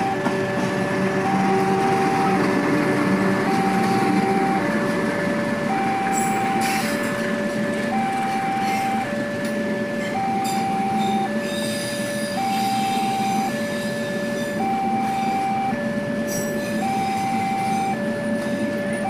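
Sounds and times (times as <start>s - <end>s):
train coaches rumbling past: 0.0s - 19.0s
two-tone crossing alarm: 0.0s - 19.0s
wheel squeals: 10.4s - 14.6s.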